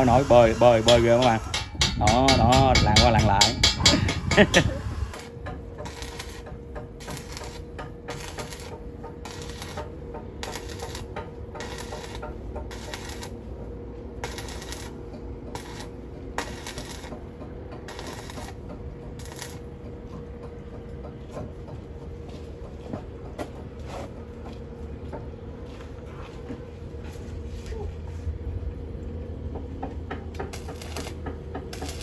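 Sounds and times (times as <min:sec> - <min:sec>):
welding arc crackling: 0:00.0 - 0:13.5, 0:14.2 - 0:19.7, 0:30.4 - 0:32.0
steady hum: 0:00.0 - 0:32.0.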